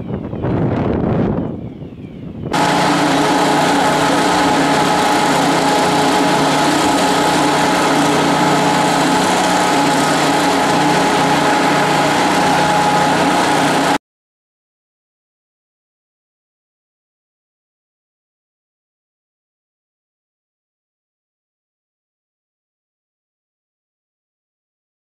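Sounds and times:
wind buffeting microphone: 0.0 - 13.9
engine-driven pump drone and whine: 2.5 - 14.0.

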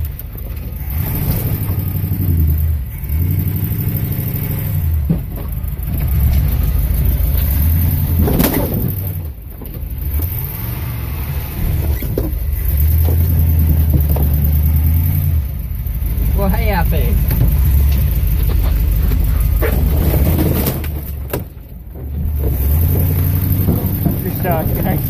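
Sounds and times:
vehicle engine revving: 0.0 - 25.0
branches scraping windows: 3.5 - 15.4, 16.1 - 25.0
loud knocks: 12.1 - 14.9, 17.2 - 25.0.

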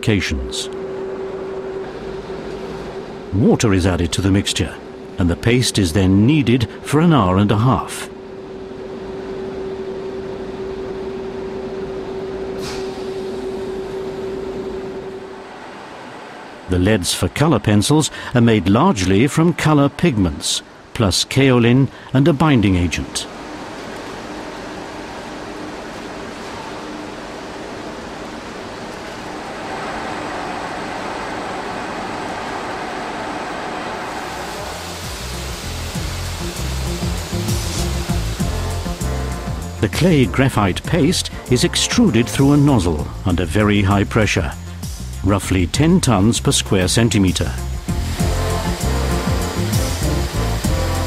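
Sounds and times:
constant mid-pitched tone: 0.0 - 51.0
factory machinery humming: 0.0 - 51.0
short hiss: 12.6 - 13.4
industrial mixer running: 33.6 - 40.0, 47.5 - 51.0.

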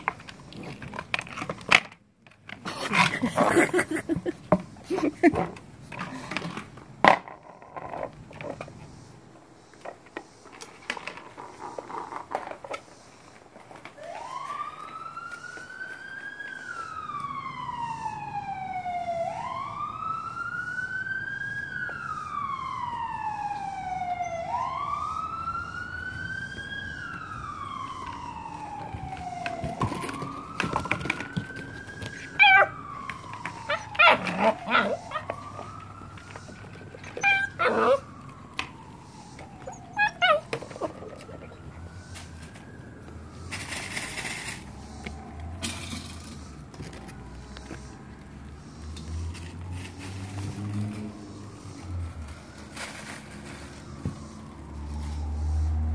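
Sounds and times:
siren wailing: 13.2 - 55.9
puppies yipping: 23.6 - 24.9, 32.0 - 32.8, 33.4 - 35.7, 36.4 - 38.1, 39.4 - 41.8.

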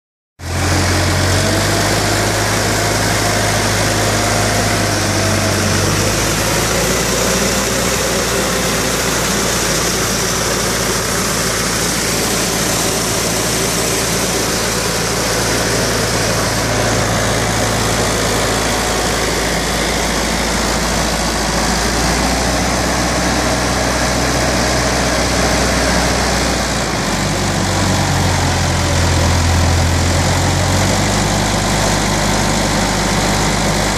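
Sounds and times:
tractor engine low drone: 0.4 - 33.9
sprayer fan rushing air: 0.5 - 33.9.

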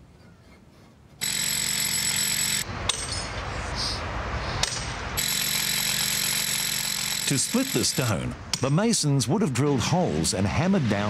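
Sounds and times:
pneumatic rock drill hammering: 1.2 - 3.1, 4.6 - 8.6.

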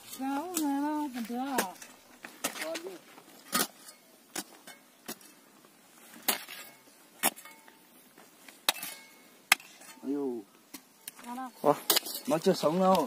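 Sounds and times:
hoe chopping stony soil: 0.0 - 5.4, 6.1 - 7.6.

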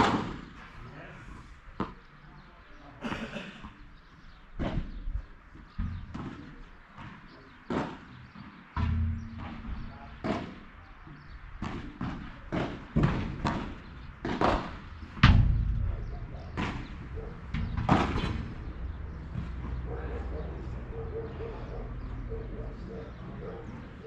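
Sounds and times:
ball hitting court and glass walls: 0.0 - 0.6, 3.6 - 22.1
ball struck by rackets: 0.0 - 0.6, 5.8 - 19.9.

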